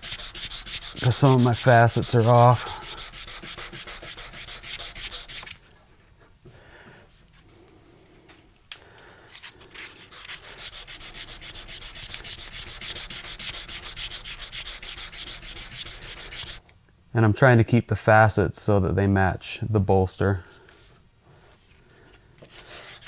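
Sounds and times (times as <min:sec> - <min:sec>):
sandpaper rubbing back and forth: 0:00.0 - 0:05.5, 0:09.7 - 0:16.6, 0:22.5 - 0:23.0.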